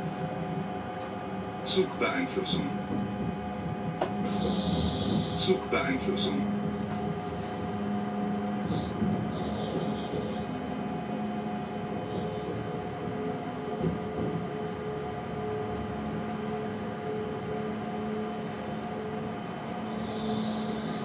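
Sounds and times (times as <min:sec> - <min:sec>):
train drive hum: 0:00.0 - 0:21.0
wheels rumbling on tracks: 0:00.0 - 0:21.0
knock: 0:02.9 - 0:05.4.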